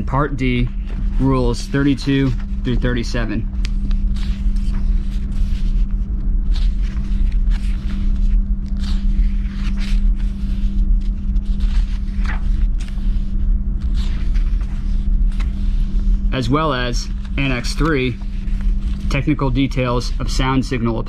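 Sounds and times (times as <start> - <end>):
book pages turning: 0.0 - 21.0
constant hum: 0.0 - 21.0
low rumble: 0.0 - 21.0.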